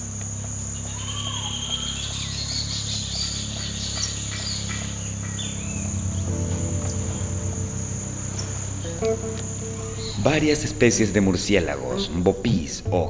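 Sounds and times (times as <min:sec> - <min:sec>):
insect trill: 0:00.0 - 0:13.0
low steady hum: 0:00.0 - 0:13.0
bird whistles and chirps: 0:00.8 - 0:06.3.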